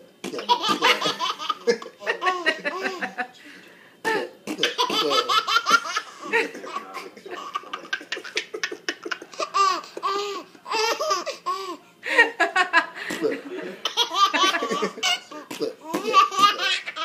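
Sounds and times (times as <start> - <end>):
baby laughing: 0.3 - 3.2, 4.6 - 11.8, 13.8 - 17.0
man laughing: 0.4 - 3.4, 6.0 - 10.2, 12.1 - 16.8.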